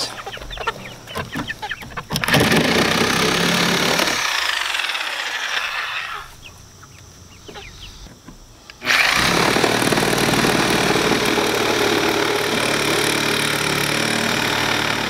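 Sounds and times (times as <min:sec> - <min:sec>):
reciprocating saw cutting wood: 0:02.2 - 0:06.3, 0:08.8 - 0:15.0.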